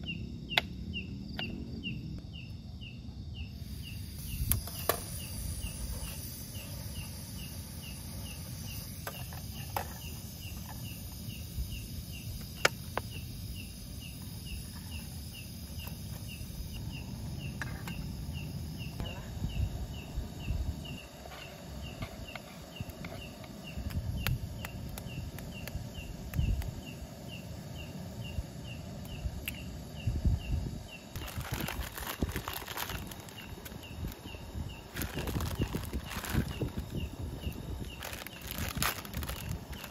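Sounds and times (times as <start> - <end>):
cricket chirping: 0.0 - 39.9
low rumbling and rustling: 30.4 - 39.9.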